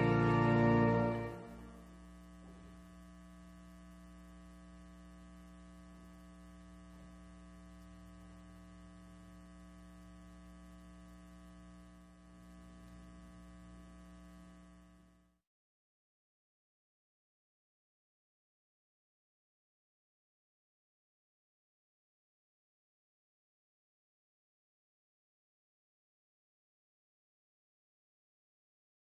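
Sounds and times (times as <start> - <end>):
faint mains hum: 0.0 - 15.4.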